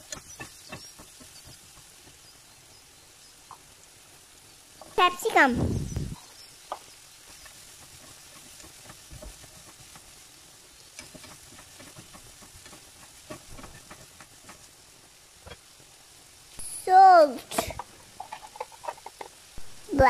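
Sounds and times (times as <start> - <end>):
spatula clicking and scraping: 0.0 - 2.5, 6.6 - 16.0, 17.5 - 19.5
vegetables sizzling in a pan: 0.0 - 20.0.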